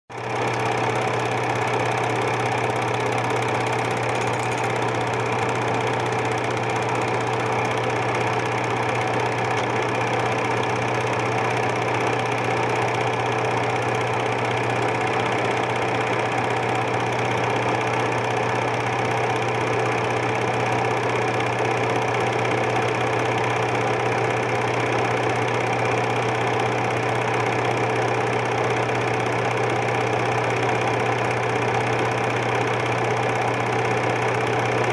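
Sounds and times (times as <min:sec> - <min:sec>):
film projector whirring: 0:00.1 - 0:34.9.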